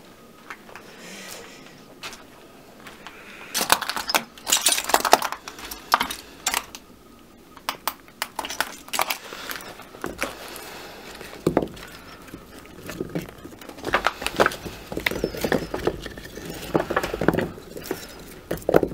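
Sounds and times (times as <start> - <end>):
clay blocks clinking: 3.6 - 6.8, 7.6 - 18.9.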